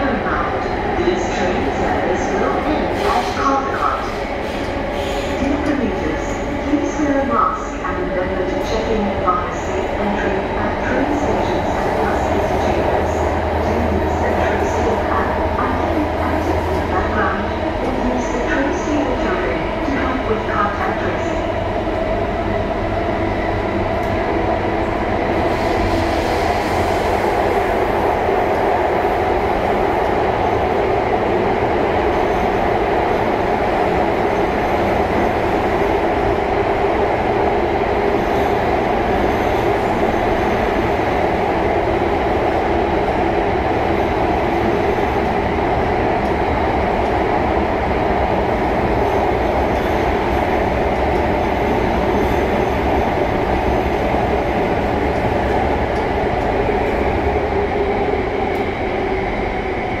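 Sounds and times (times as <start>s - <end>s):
metro train rumbling: 0.0s - 60.0s.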